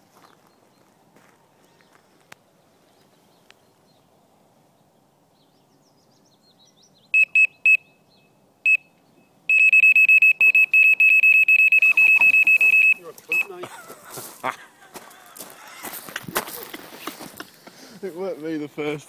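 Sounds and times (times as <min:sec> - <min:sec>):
bite alarm beeping: 0:07.2 - 0:08.0, 0:08.7 - 0:13.6.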